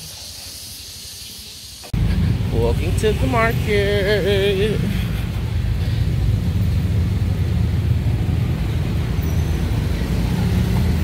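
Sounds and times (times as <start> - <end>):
street traffic rumble: 0.0 - 11.0
motor scooters passing: 2.0 - 11.0.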